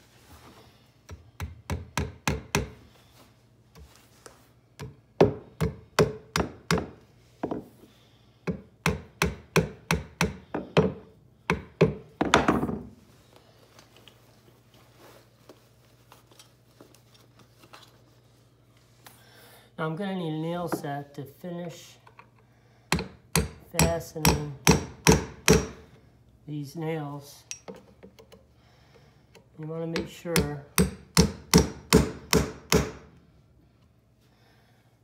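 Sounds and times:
hammer tapping nails into wood: 1.1s - 2.8s, 4.8s - 7.6s, 8.4s - 12.6s, 22.9s - 25.8s, 30.0s - 33.0s.

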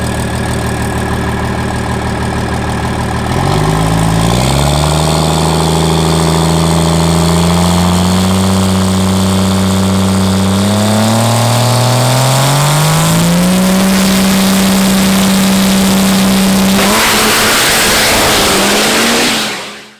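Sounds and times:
diesel truck engine revving: 0.0s - 19.9s
loud rushing noise: 13.6s - 19.9s.

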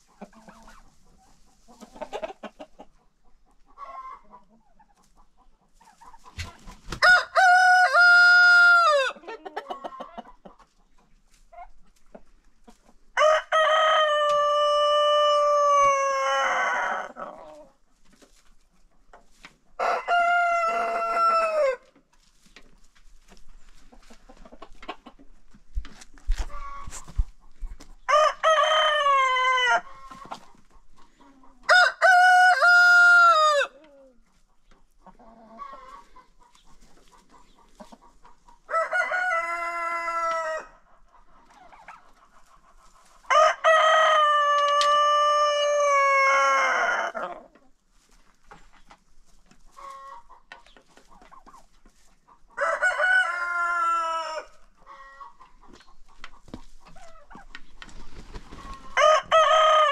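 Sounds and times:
chickens clucking: 0.0s - 59.9s
roosters crowing: 7.0s - 9.2s, 13.2s - 17.2s, 19.8s - 21.8s, 28.1s - 30.2s, 31.7s - 33.8s, 38.7s - 40.7s, 43.3s - 47.4s, 52.6s - 55.3s, 58.6s - 59.9s.

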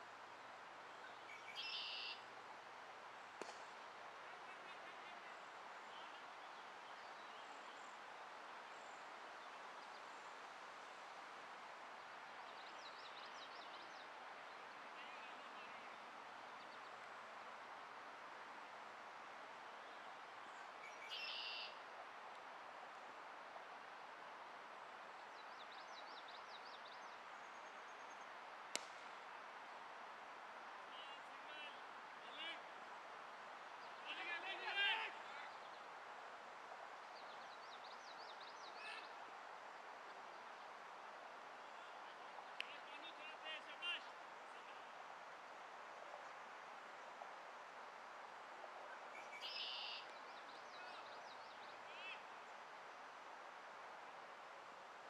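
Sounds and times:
steady outdoor hiss: 0.0s - 55.0s
faint bird chirps: 0.9s - 2.2s, 19.8s - 21.8s, 49.1s - 52.2s
bat striking cricket ball: 3.4s - 3.6s, 28.8s - 29.0s
cricket bat striking ball: 28.8s - 29.0s.

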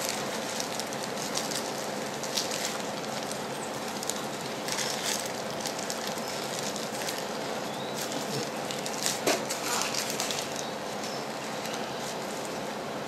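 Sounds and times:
plastic gloves rustling: 0.0s - 13.0s.

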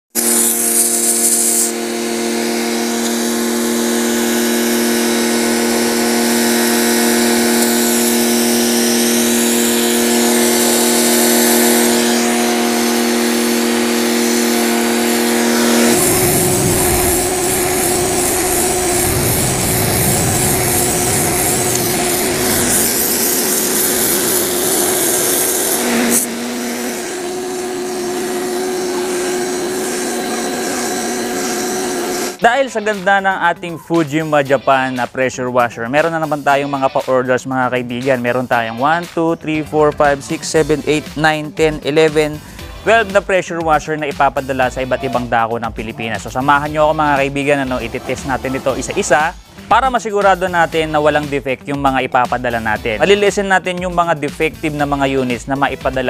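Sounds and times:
water jet hissing on concrete: 0.1s - 32.4s, 45.7s - 51.5s
pressure washer motor hum: 0.1s - 56.0s.

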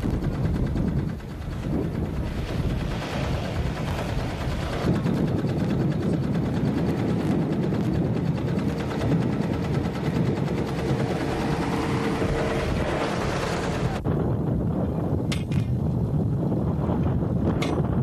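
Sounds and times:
drilling rig engine running: 0.0s - 14.1s.

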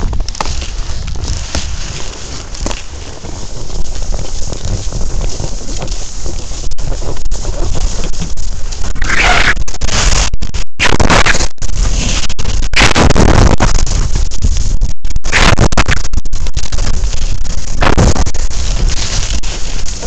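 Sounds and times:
skis scraping over snow: 0.0s - 10.3s, 11.3s - 12.7s, 16.7s - 20.0s
wind buffeting microphone: 0.0s - 20.0s.

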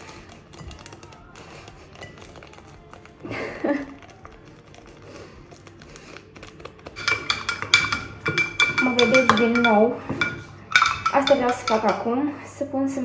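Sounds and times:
spoon clinking against glass: 7.0s - 12.1s.

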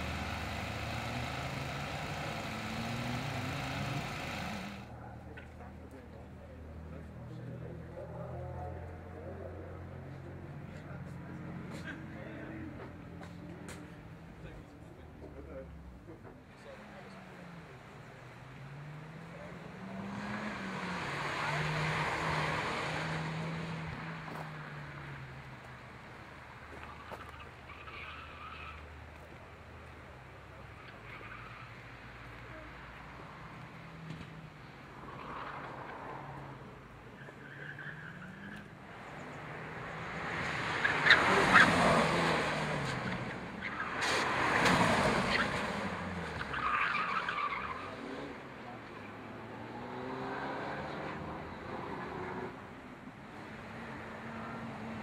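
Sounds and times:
tyres squealing: 0.0s - 4.9s
race car engine passing: 0.0s - 5.2s, 17.2s - 25.4s, 33.2s - 52.7s.

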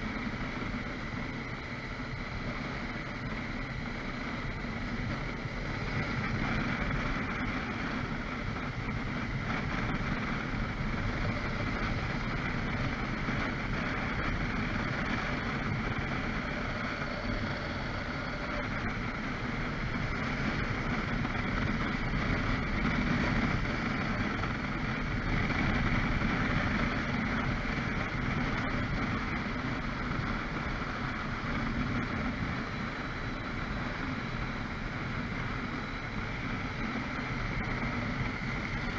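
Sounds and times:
city traffic hum: 0.0s - 38.9s.

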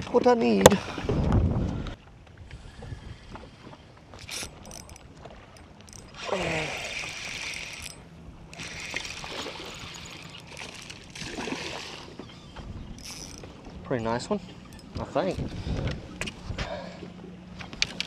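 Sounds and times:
wind: 0.0s - 18.0s
waves lapping at boat hull: 0.2s - 18.0s
fishing reel being worked: 4.2s - 5.0s, 5.6s - 12.0s, 13.0s - 13.4s.

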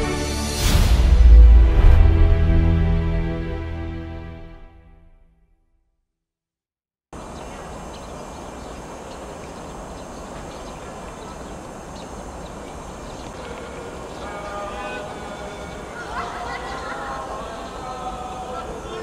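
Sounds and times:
low rumble: 0.6s - 4.6s
stadium ambience hiss: 7.2s - 19.0s.

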